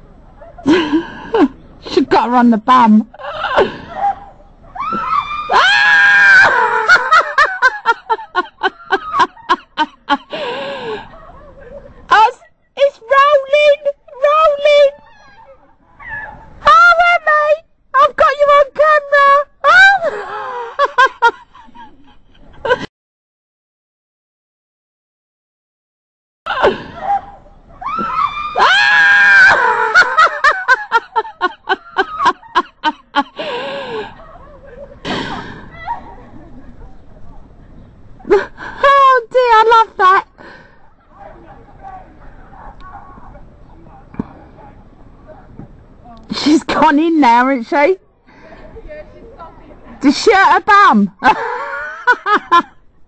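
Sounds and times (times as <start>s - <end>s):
high-pitched shriek of laughter: 26.5s - 32.6s.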